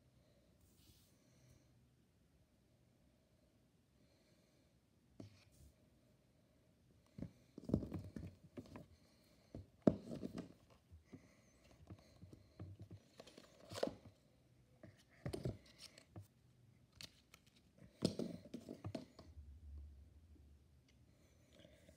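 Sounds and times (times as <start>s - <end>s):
cardboard box rustling and knocking: 7.6s - 8.9s.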